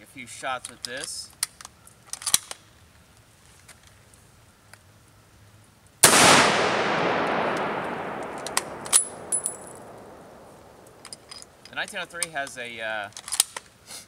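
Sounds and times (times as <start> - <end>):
rifle shot echoing: 6.0 - 11.0
metallic clicks with ring: 8.3 - 10.0.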